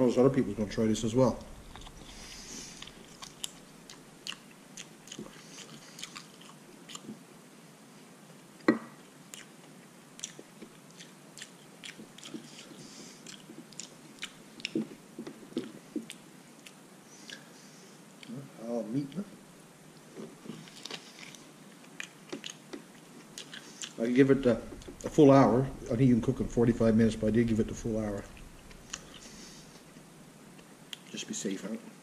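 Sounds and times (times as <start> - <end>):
person chewing meat: 1.5 - 7.2, 9.3 - 17.4, 20.5 - 24.0, 28.3 - 29.9
mouth clicks and smacks: 10.2 - 17.4, 21.9 - 24.0.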